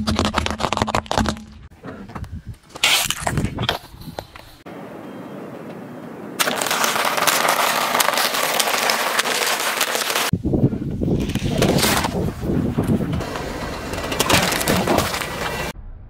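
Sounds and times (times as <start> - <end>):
tyre crushing wafer cones: 6.4 - 10.3, 11.2 - 15.8.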